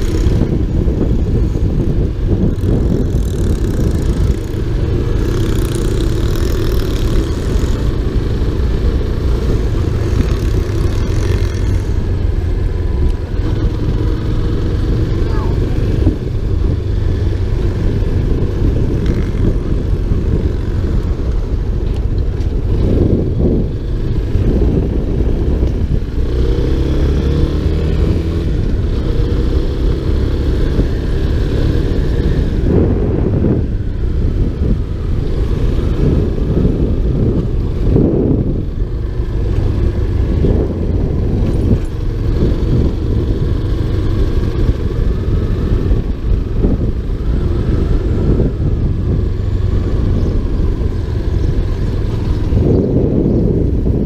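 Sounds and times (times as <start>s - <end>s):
motorcycle engine running: 0.0s - 54.0s
wind rumble on microphone: 0.0s - 54.0s.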